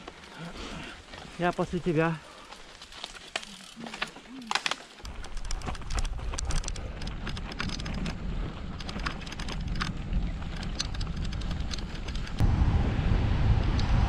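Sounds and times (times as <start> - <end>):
bike tyres crunching on gravel: 0.0 - 12.0
low rumble: 9.6 - 14.0.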